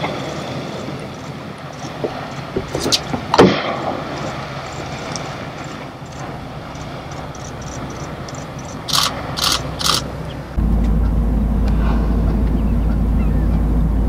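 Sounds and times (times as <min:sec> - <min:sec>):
boat engine rumble: 0:00.0 - 0:14.0
whale blowing breath: 0:11.6 - 0:12.4.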